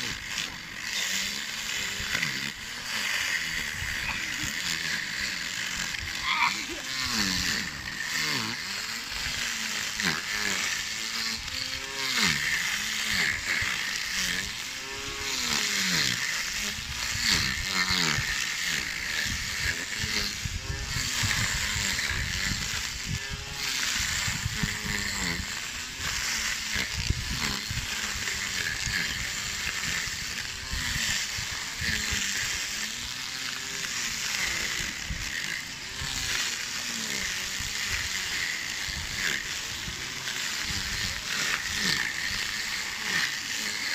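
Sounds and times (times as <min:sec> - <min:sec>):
electric grass trimmer cutting grass: 0:00.0 - 0:43.9.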